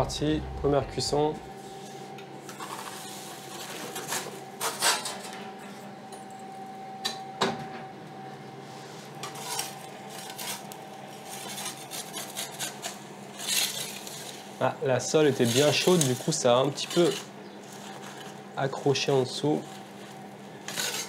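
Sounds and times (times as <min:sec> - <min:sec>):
faint steady hum: 0:00.0 - 0:03.0
metal peels clinking and scraping: 0:15.3 - 0:18.4.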